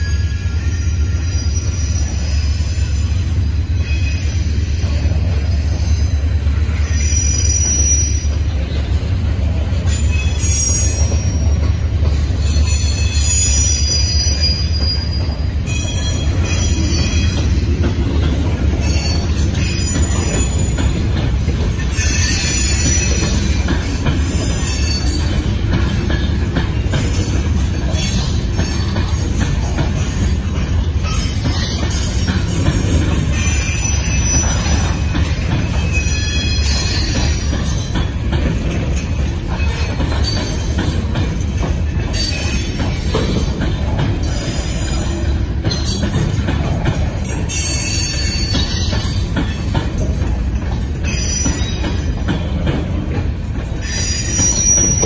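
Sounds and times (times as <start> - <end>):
high-pitched wheel squeal: 0.0 - 8.6, 9.8 - 11.6, 12.2 - 17.5, 21.8 - 23.5, 35.7 - 37.9, 53.8 - 55.0
freight train rumbling past: 0.0 - 55.0.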